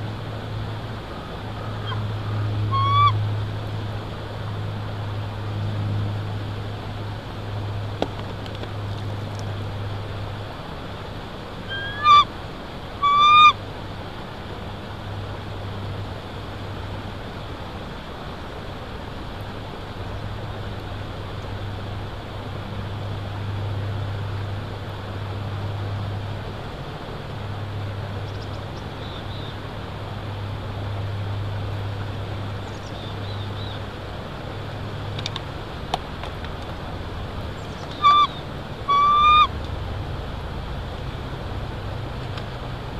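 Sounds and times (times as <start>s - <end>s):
eagle calling: 1.2s - 3.2s, 11.7s - 12.3s, 13.0s - 13.6s, 37.7s - 39.5s.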